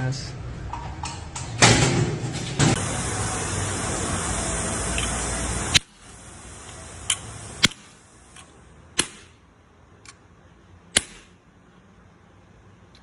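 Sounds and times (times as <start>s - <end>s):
steady hiss: 2.6s - 8.8s
hammer striking steel punch: 9.0s - 9.4s, 10.9s - 11.3s.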